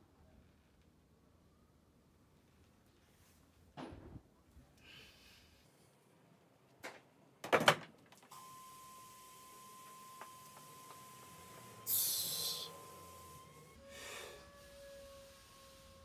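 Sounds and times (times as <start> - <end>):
steady high pure tone: 11.1 - 14.4
sharp hissing breath: 11.9 - 12.8, 13.8 - 14.7.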